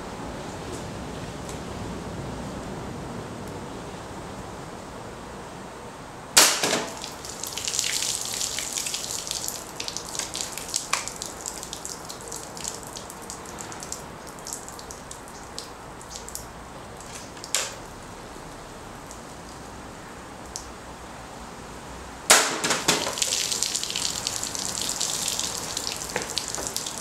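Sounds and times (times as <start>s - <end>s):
water splattering and dripping: 6.4s - 17.8s, 22.3s - 27.0s.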